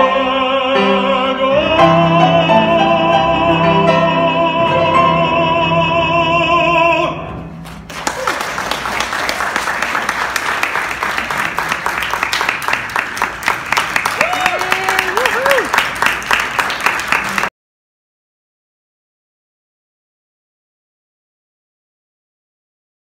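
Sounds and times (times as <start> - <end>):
man singing operatic note: 0.0 - 7.5
piano chords: 0.0 - 8.8
audience applauding: 7.6 - 17.5.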